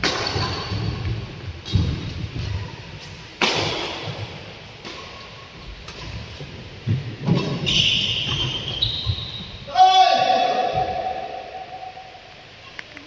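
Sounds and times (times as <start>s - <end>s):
rackets striking shuttlecock: 0.0s - 2.0s, 3.4s - 6.2s.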